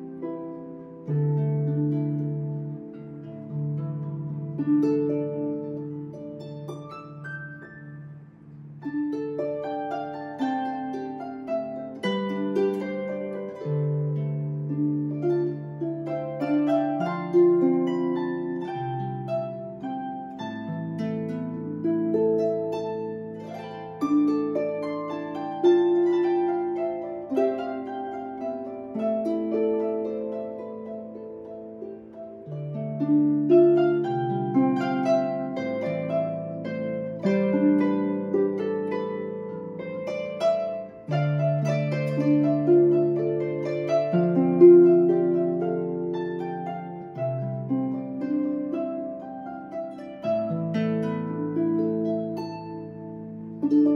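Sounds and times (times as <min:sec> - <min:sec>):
harp playing: 0:00.0 - 0:53.9.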